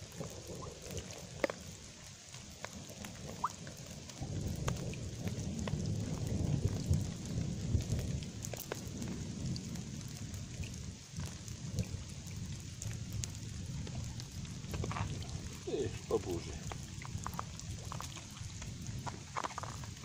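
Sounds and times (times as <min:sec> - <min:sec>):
light rain: 0:00.0 - 0:20.0
distant thunder rumble: 0:04.2 - 0:20.0.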